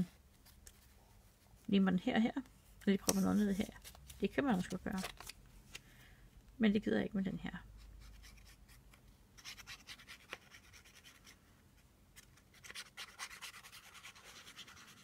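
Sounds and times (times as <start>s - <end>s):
paper scratching and rubbing: 9.4s - 11.4s, 12.3s - 15.0s.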